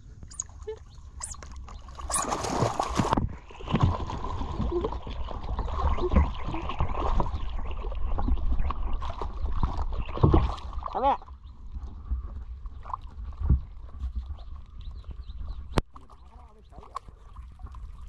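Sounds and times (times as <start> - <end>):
water splashing and sloshing: 0.0 - 18.0
loud splash of otter surfacing: 2.1 - 3.2.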